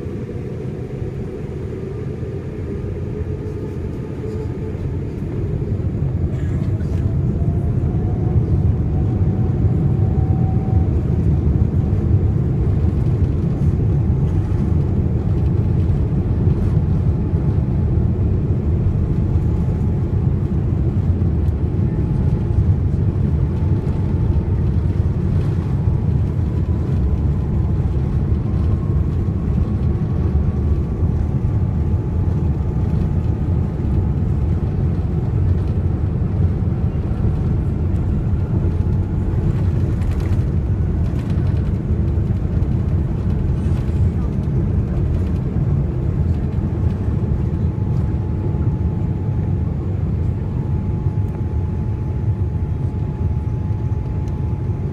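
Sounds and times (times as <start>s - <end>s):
faint rising whine: 0.0s - 6.3s
jet engines and wheels rumbling: 0.0s - 54.9s.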